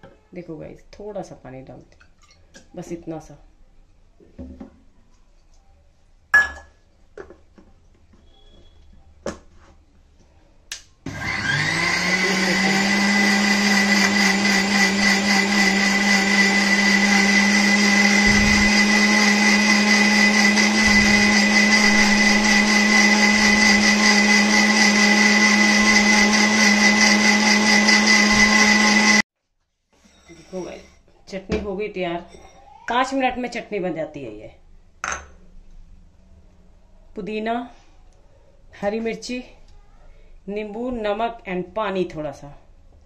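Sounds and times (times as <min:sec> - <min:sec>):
mixer grinder motor whine: 0:11.1 - 0:29.2.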